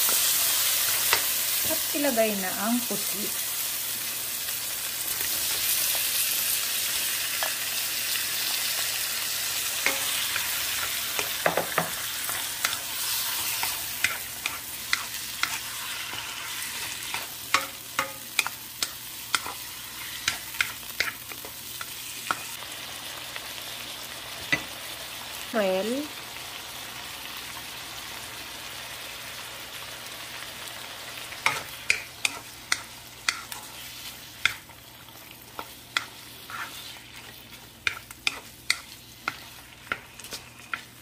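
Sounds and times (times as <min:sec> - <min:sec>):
squid sizzling in hot oil: 0:00.0 - 0:41.0
wooden spatula tapping pan: 0:11.2 - 0:12.0.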